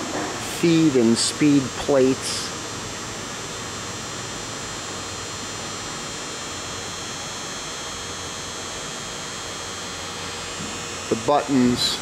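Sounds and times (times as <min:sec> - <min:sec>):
machinery hum and hiss: 0:00.0 - 0:12.0.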